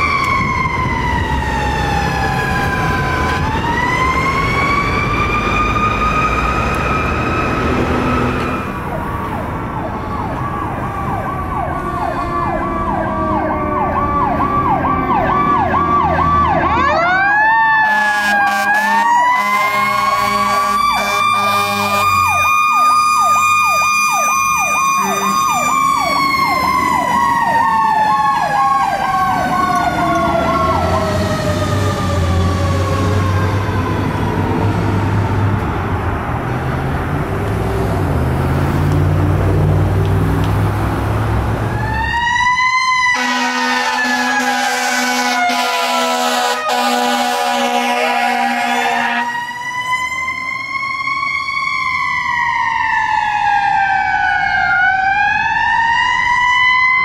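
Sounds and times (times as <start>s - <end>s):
electronic yelp siren: 0.0s - 35.9s, 41.6s - 57.0s
mechanical siren wailing: 0.0s - 35.9s, 41.6s - 57.0s
vehicle horn: 17.8s - 22.2s, 43.2s - 49.4s.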